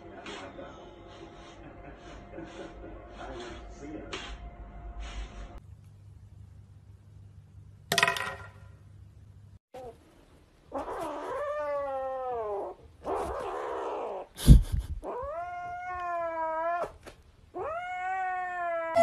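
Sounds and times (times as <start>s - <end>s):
cat yowling: 10.8s - 14.3s, 15.0s - 19.0s.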